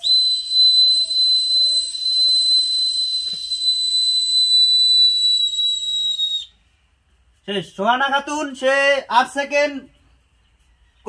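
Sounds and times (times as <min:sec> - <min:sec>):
plastic whistle long high note: 0:00.0 - 0:06.5.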